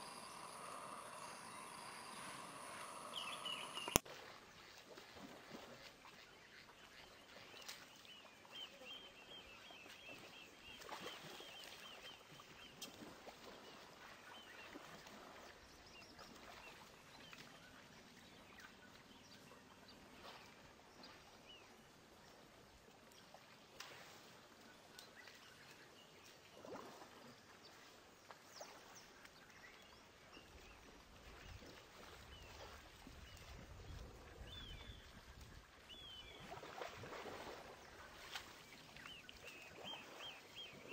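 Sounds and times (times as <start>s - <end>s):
low rumbling: 0.0s - 4.0s
soft splashes: 0.0s - 8.7s, 9.8s - 40.9s
clicks: 2.1s - 4.0s.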